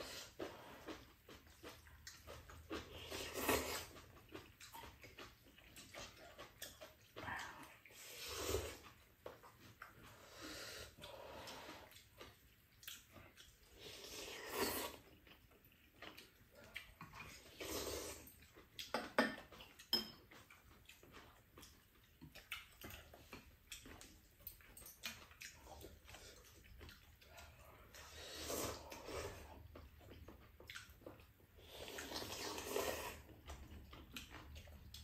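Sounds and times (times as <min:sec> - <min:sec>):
slurping noodles: 0:02.4 - 0:04.8, 0:07.4 - 0:09.0, 0:13.7 - 0:15.1, 0:16.8 - 0:18.3, 0:27.4 - 0:29.7, 0:31.6 - 0:33.6
tableware clinking: 0:19.0 - 0:20.2.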